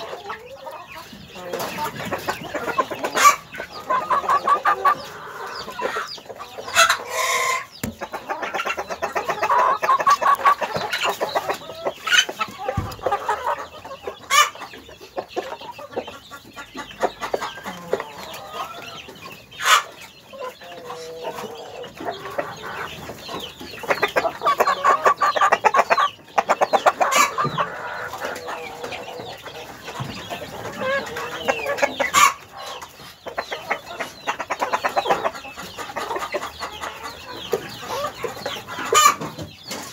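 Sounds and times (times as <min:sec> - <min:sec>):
chickens clucking: 0:00.0 - 0:39.9.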